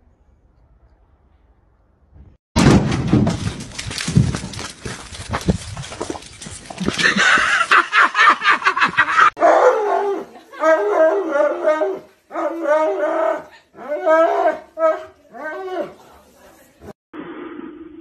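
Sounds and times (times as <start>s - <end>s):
dog howling and yowling: 9.4s - 15.9s.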